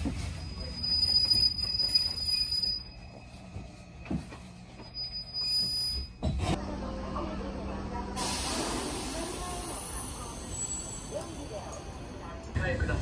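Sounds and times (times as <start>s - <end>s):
train wheels squealing on rails: 0.0s - 6.3s, 9.4s - 11.8s.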